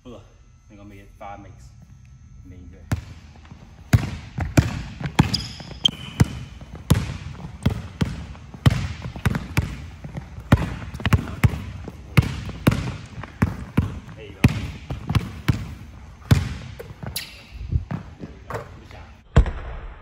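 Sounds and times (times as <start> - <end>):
basketball dribbling on gym floor: 2.8 - 18.7
sneaker squeak: 2.9 - 18.8.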